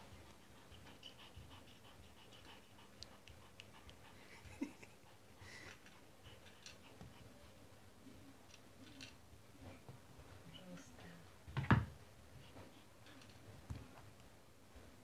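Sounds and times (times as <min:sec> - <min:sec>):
cat panting: 0:00.0 - 0:08.8, 0:12.1 - 0:14.0.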